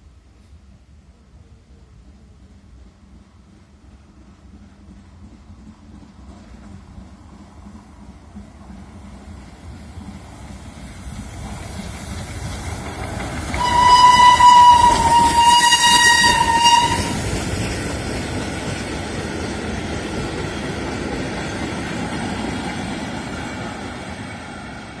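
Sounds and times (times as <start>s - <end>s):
wheel-on-rail noise: 9.5s - 25.0s
steam whistle blast: 13.6s - 17.2s.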